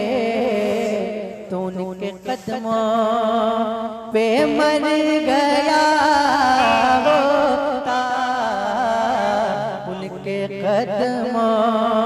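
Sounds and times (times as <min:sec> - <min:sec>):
man singing devotional song: 0:00.0 - 0:12.0
steady low drone: 0:06.5 - 0:08.0.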